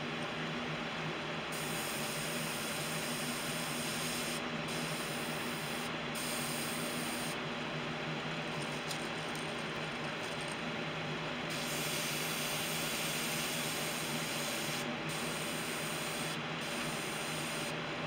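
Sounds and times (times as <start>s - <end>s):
airbrush spraying hiss: 1.5s - 7.4s, 11.5s - 17.8s.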